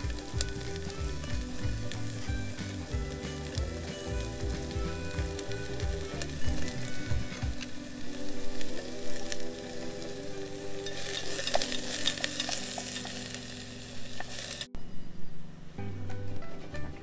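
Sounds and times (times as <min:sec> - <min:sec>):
food sizzling in hot oil: 0:00.0 - 0:14.7
spoon stirring in metal pot: 0:10.7 - 0:13.5.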